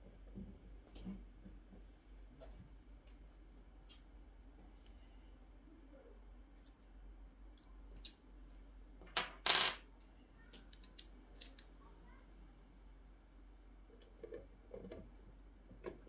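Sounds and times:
screwdriver and screws clicking: 10.7s - 11.7s.

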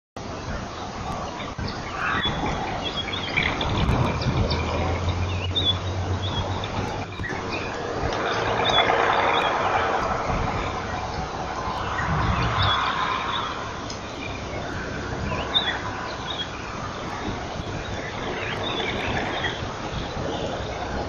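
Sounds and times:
small birds chirping: 0.2s - 21.0s
steady hiss: 0.2s - 21.0s
low hum: 0.5s - 21.0s.

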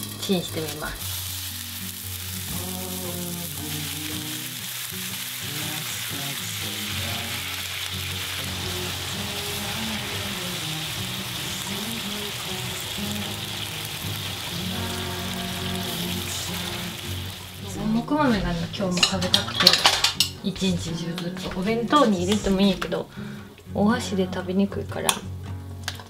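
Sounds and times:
eggplant sizzling in oil: 0.0s - 20.3s
seasoning bubbling: 0.0s - 20.6s.

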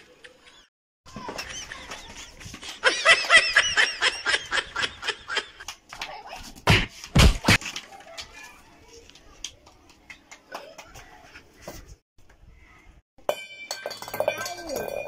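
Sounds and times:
children giggling: 0.0s - 5.7s.

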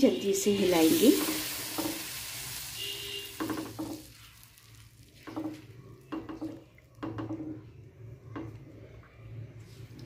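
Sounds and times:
faint sizzle: 0.0s - 6.4s.

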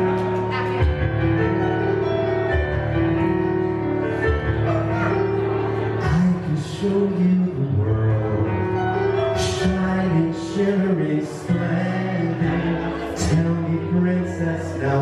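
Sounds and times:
piano playing chords: 0.0s - 15.0s
person singing: 4.2s - 15.0s.

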